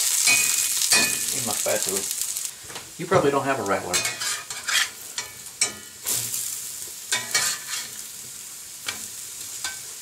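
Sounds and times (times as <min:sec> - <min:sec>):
food sizzling in butter: 0:00.0 - 0:10.0
metal spatula scraping skillet: 0:03.9 - 0:06.4, 0:07.1 - 0:08.0.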